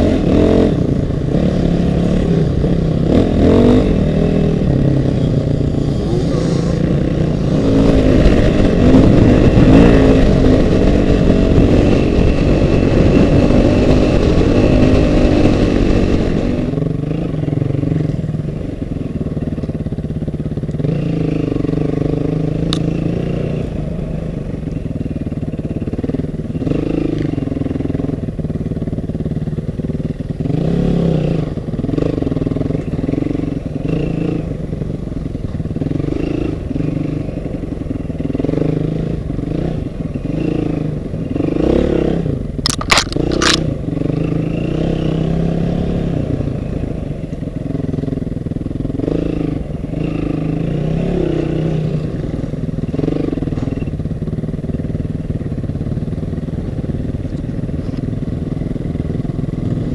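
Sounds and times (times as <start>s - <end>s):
motorcycle engine revving: 0.0s - 59.9s
sharp click: 42.6s - 43.7s.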